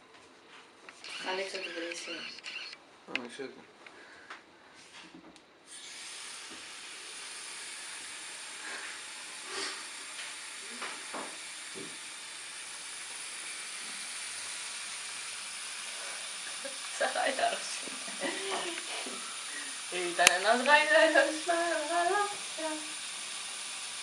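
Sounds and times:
tap turned on: 10.2 - 12.0, 18.2 - 19.3, 20.0 - 21.1.

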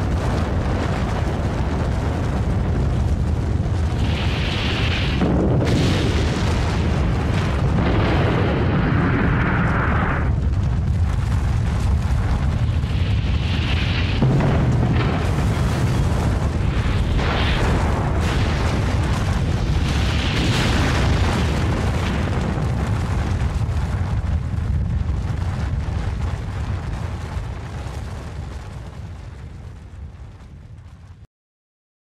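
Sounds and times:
explosion rumble: 0.0 - 31.2.

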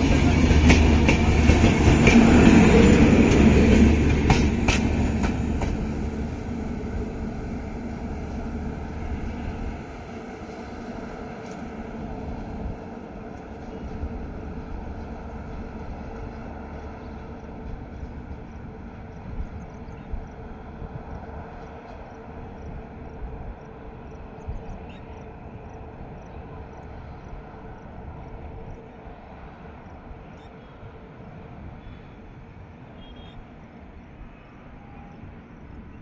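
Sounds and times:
distant locomotive engine rumble: 0.0 - 36.0.

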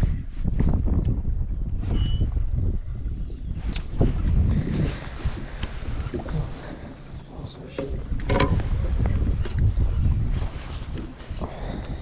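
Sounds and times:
wind buffeting microphone: 0.0 - 12.0
irregular knocks: 7.7 - 8.7.

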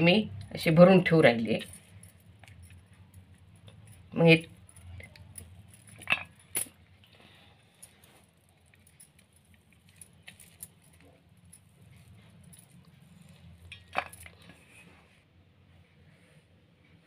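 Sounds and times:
faint rustling of hands: 1.6 - 17.0.

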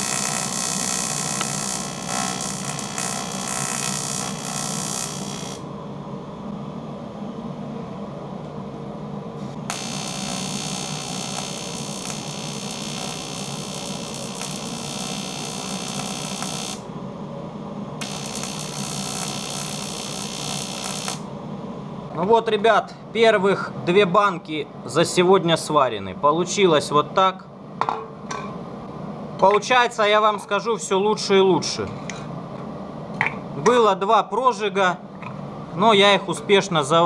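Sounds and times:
welding arc buzzing: 0.0 - 5.7, 9.4 - 16.9, 18.0 - 21.3
steady low hum: 0.0 - 37.0.

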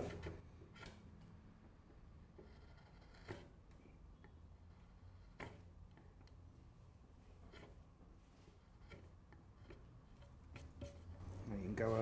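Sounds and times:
gouge slicing wood: 2.4 - 3.6.

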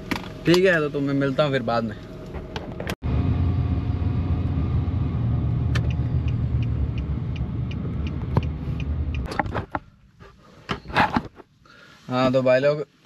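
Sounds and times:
car road and engine rumble: 0.0 - 12.6
light regular ticking: 5.8 - 9.3.

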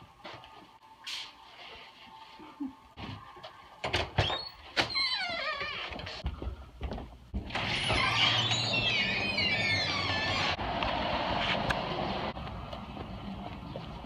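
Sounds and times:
glass door opening: 7.4 - 10.6
high wavering squeaks: 7.6 - 10.6
street noise with traffic hum: 10.2 - 14.0.

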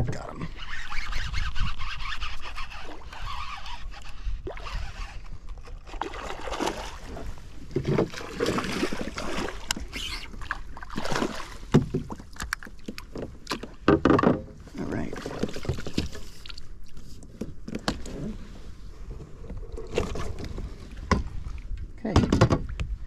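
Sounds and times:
water sloshing in net: 5.8 - 13.8.

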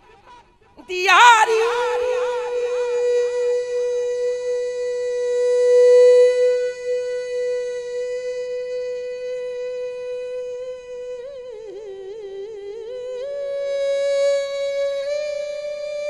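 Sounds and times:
man singing ornamented notes: 0.8 - 10.2.

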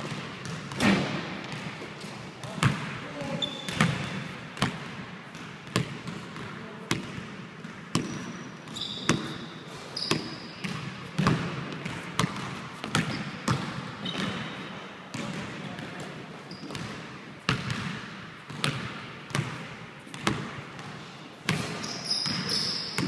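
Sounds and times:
sneaker squeaks: 3.2 - 4.3, 7.9 - 11.3, 12.8 - 14.8, 16.4 - 17.1, 21.5 - 23.0.

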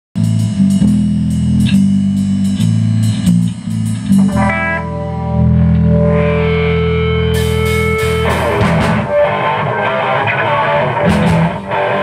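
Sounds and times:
drums and cymbal hits: 0.2 - 9.7, 10.7 - 12.0
electric guitars: 0.3 - 12.0
guitar chord ringing: 2.5 - 12.0.

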